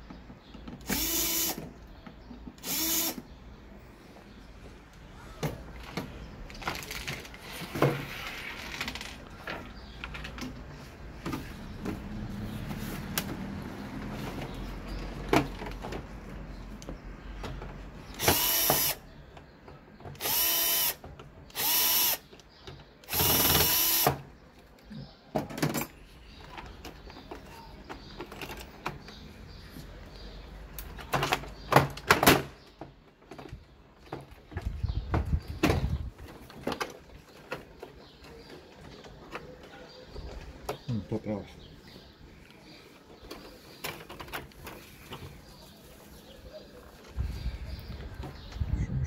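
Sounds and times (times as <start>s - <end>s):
electric drill-driver whirring: 0.9s - 1.6s, 2.6s - 3.2s, 18.2s - 19.0s, 20.2s - 22.2s, 23.0s - 24.2s.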